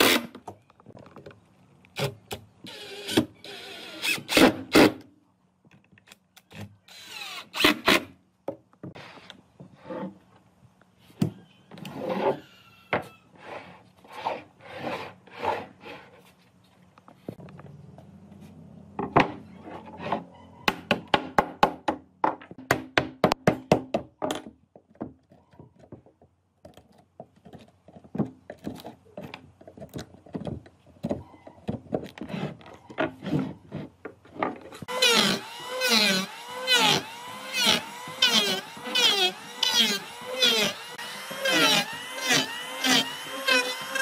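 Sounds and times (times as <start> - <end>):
sharp wooden knocks: 20.7 - 25.2
electric hand planer cutting: 34.9 - 44.0.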